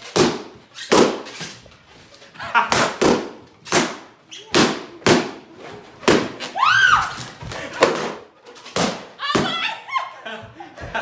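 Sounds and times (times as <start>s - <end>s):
balloons bursting: 0.0s - 1.6s, 2.5s - 9.6s.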